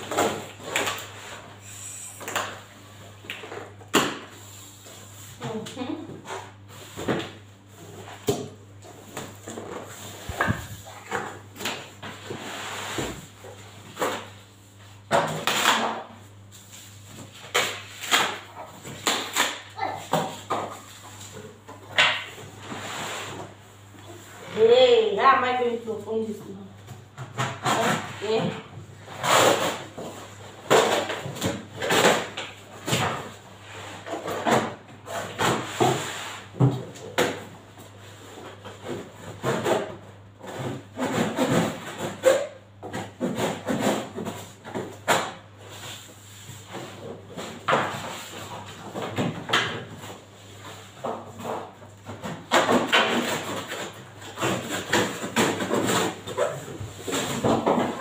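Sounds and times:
cardboard scraping and knocking: 9.1 - 14.3.

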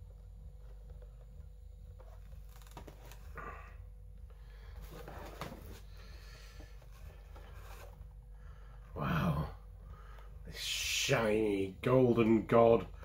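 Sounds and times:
low room hum: 0.0 - 13.0
cardboard boxes rustling and tapping: 4.8 - 5.9.

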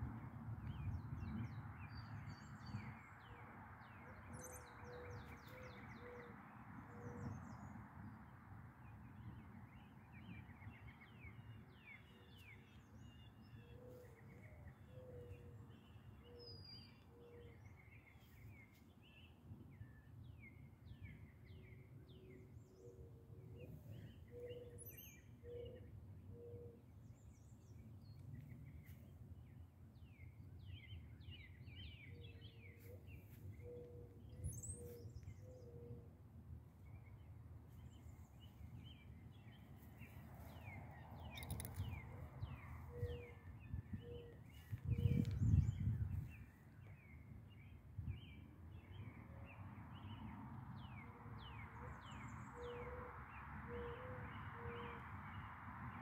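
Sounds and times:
small birds chirping: 37.7 - 46.5.

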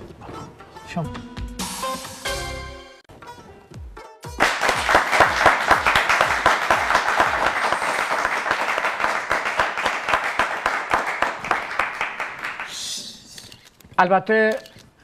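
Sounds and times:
group of people applauding: 4.4 - 12.9.

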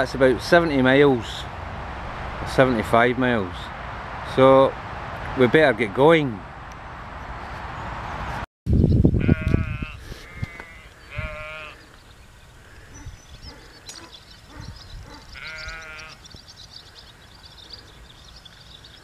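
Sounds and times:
sheep bleating: 9.2 - 11.8, 15.2 - 16.2
faint high chirping: 11.9 - 19.0.

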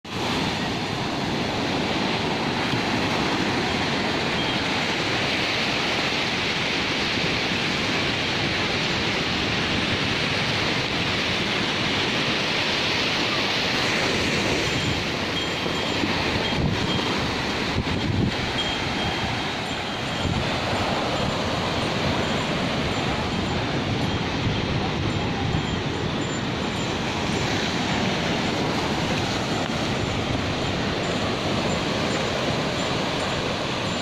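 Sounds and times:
sea surf breaking on beach: 0.0 - 34.0.

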